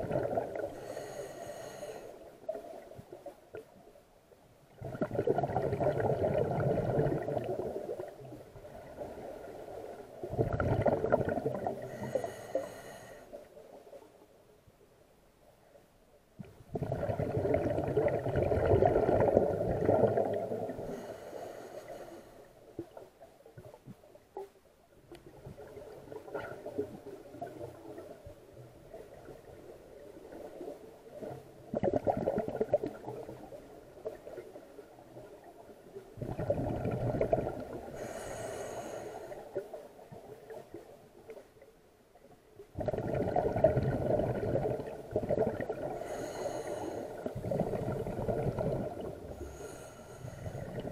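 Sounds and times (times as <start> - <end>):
diver exhaling bubbles underwater: 0.0 - 1.0, 4.7 - 9.4, 10.2 - 12.3, 16.7 - 21.0, 31.2 - 33.5, 36.2 - 39.0, 42.8 - 50.9.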